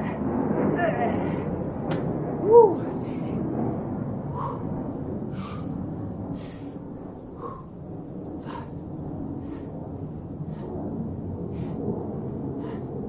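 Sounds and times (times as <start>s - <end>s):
man breathing hard: 4.2s - 13.0s.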